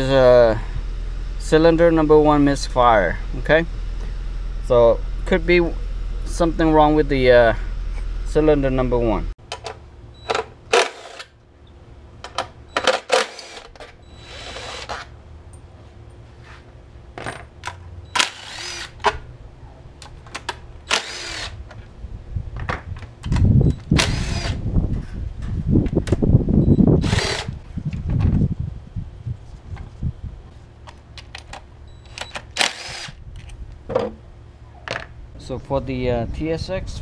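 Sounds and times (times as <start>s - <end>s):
cordless drill running: 13.1s - 15.1s, 18.2s - 19.0s, 20.9s - 21.6s, 24.0s - 24.6s, 27.0s - 27.6s, 32.6s - 33.2s
handling clicks and knocks: 30.8s - 32.5s.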